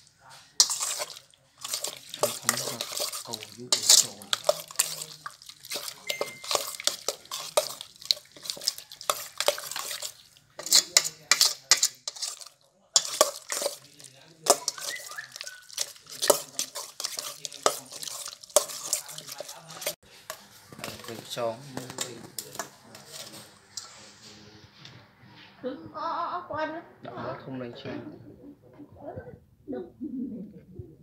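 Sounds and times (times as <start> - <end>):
meat mixed in metal bowl: 0.0 - 24.4.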